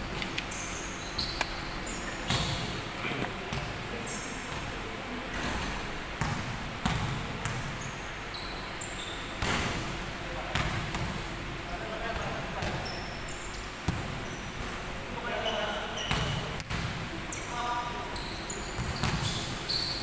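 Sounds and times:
sneakers squeaking on floor: 0:00.5 - 0:02.8, 0:03.5 - 0:09.9, 0:12.1 - 0:16.6, 0:17.3 - 0:20.0
basketball bouncing on floor: 0:05.4 - 0:07.7, 0:10.5 - 0:11.1, 0:16.1 - 0:16.9, 0:18.8 - 0:19.4.

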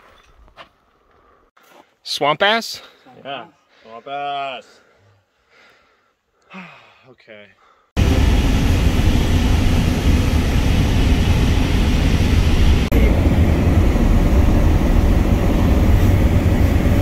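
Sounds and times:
car wind and road noise: 0:08.0 - 0:17.0.

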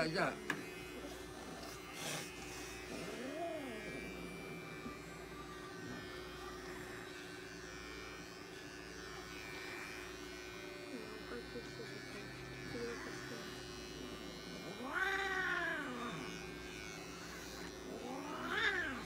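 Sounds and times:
electric pet clipper humming: 0:00.0 - 0:19.0.

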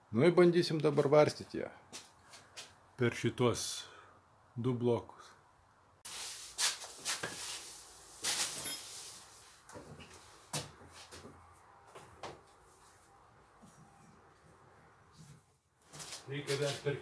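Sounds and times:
rope rustling: 0:06.1 - 0:11.2.

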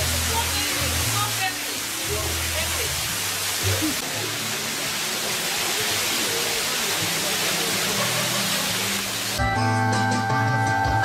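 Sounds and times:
faint voices: 0:03.6 - 0:09.2.

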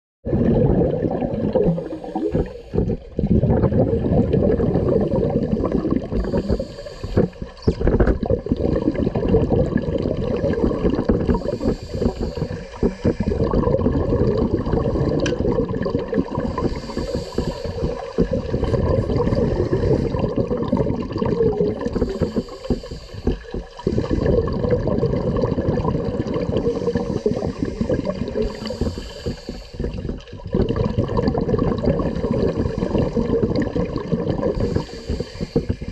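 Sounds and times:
exhaled air bubbling underwater: 0:00.2 - 0:35.9
regulator inhalation hiss: 0:01.7 - 0:02.8, 0:06.1 - 0:07.6, 0:11.3 - 0:13.5, 0:16.4 - 0:18.4, 0:21.8 - 0:24.2, 0:26.6 - 0:30.1, 0:34.5 - 0:35.9.

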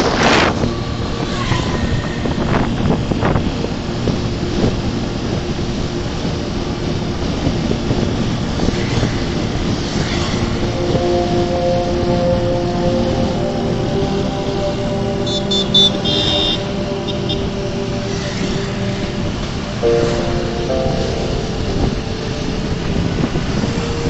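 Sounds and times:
motorcycle engine and road noise: 0:00.0 - 0:24.0
wind rush on microphone: 0:00.0 - 0:24.0.

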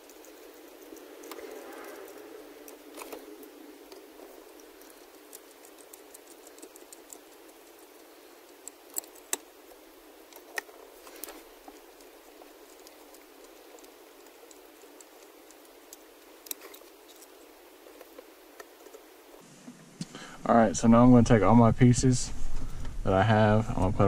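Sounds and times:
sharp clicks: 0:00.0 - 0:19.0
metal parts clicking and rattling: 0:00.0 - 0:19.1
rustling: 0:00.0 - 0:19.8.

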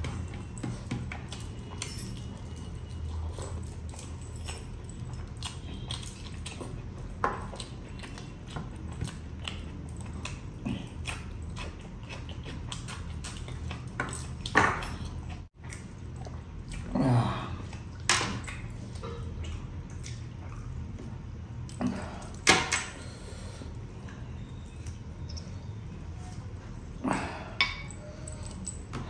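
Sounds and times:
person chewing and lip smacking: 0:01.1 - 0:14.5, 0:17.6 - 0:20.9.

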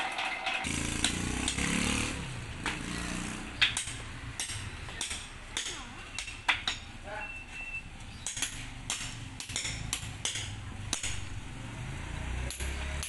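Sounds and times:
concrete saw engine: 0:00.6 - 0:04.0
hammer striking steel chisel: 0:03.6 - 0:06.9, 0:08.2 - 0:11.3, 0:12.4 - 0:13.0.

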